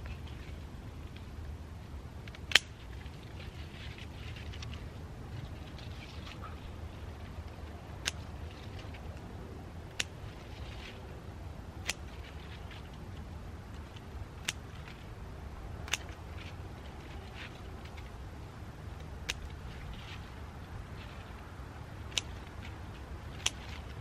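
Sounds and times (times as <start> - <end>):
foliage rustling: 0.0 - 24.0
scissors snipping stems: 11.8 - 12.9, 13.8 - 15.0, 15.8 - 16.6, 19.0 - 20.3, 21.0 - 24.0.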